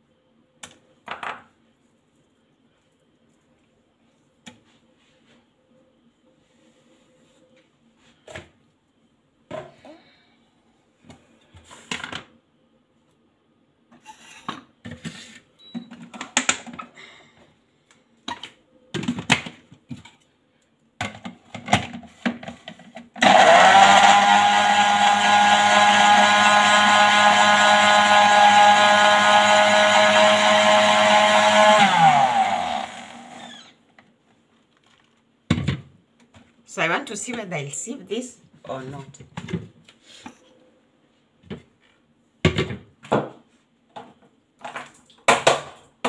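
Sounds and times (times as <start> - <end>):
blender running: 23.2 - 33.8.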